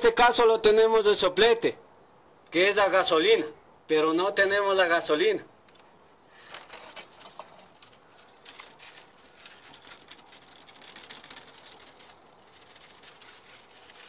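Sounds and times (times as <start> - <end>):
burning paper crackling: 6.4 - 14.0.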